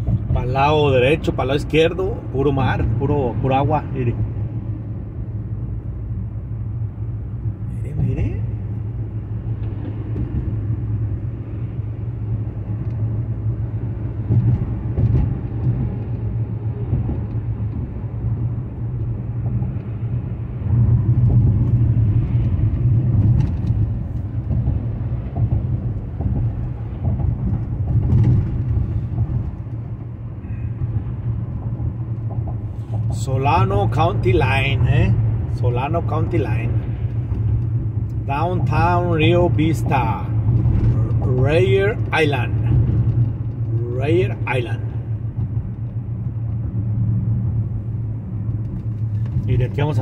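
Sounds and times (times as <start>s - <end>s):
car tyres and engine rumble: 0.0s - 50.0s
faint knocks from road bumps: 14.2s - 18.0s.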